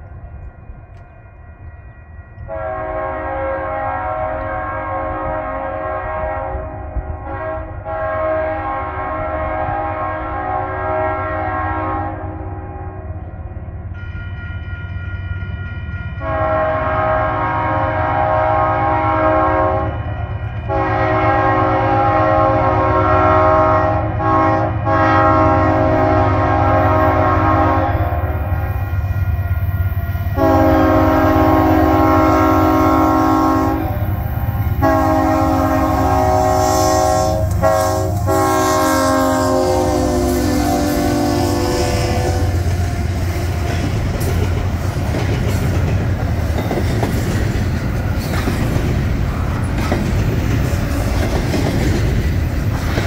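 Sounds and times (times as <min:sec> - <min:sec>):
train rumble: 0:00.0 - 0:53.0
locomotive air horn blasts: 0:02.5 - 0:12.6, 0:16.2 - 0:28.7, 0:30.3 - 0:34.2, 0:34.8 - 0:43.6.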